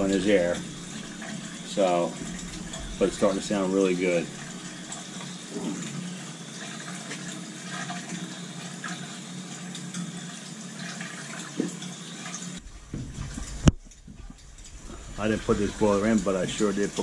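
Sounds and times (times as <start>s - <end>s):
low hum: 0.0s - 6.2s, 12.6s - 17.0s
water running into a bucket: 0.0s - 17.0s.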